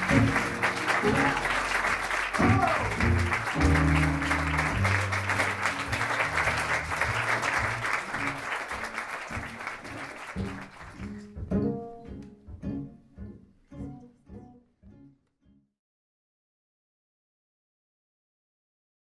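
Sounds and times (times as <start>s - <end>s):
audience applauding: 0.0s - 11.4s
slow low music: 0.0s - 15.2s.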